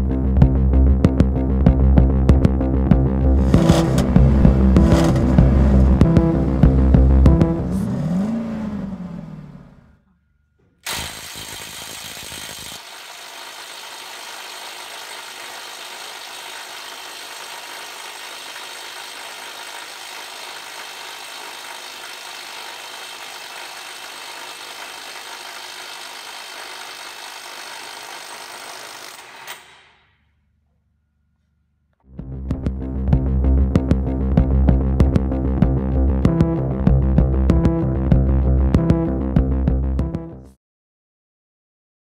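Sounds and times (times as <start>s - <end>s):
impact wrench rattling: 10.6s - 30.0s.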